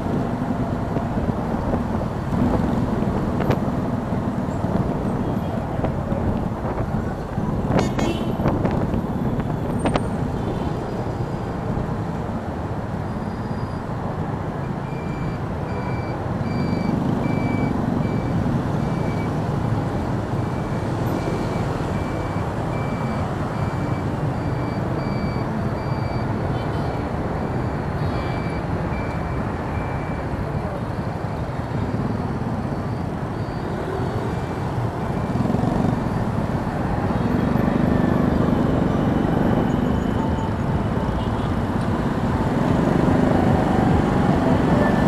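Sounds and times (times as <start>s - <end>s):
motorbike engines rumbling: 0.0s - 45.0s
road noise: 0.0s - 45.0s
electronic beep: 14.7s - 19.4s, 20.5s - 26.4s, 27.0s - 30.6s.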